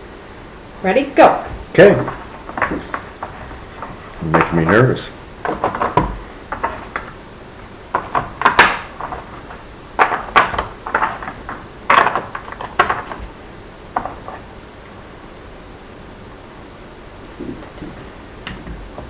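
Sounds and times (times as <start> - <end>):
wooden blocks knocking and clattering: 1.5 - 7.2, 7.9 - 14.5, 17.4 - 19.0.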